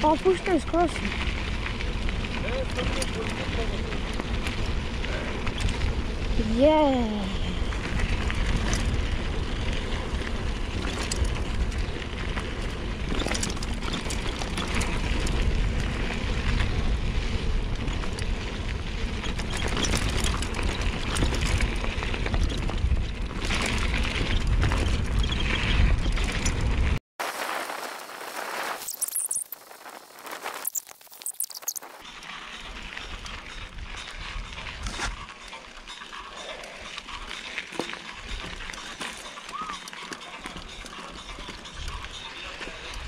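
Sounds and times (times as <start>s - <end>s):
bike rattles and knocks: 0.0s - 27.0s, 28.8s - 43.0s
wind buffeting microphone: 0.0s - 27.0s
bike tyres rolling on dirt: 0.0s - 43.0s.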